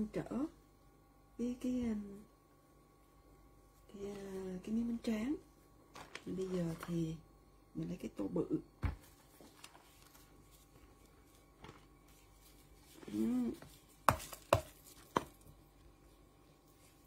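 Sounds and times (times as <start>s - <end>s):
woman humming: 13.0s - 13.6s.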